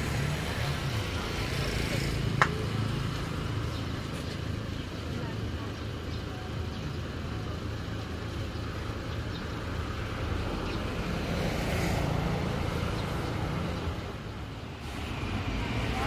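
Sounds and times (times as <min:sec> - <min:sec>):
engine hum of passing vehicles: 0:00.0 - 0:16.0.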